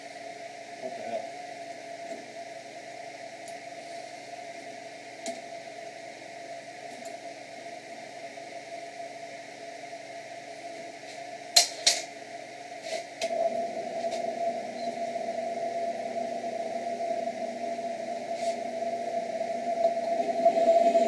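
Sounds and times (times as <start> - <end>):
drill press motor humming: 13.2 - 21.0.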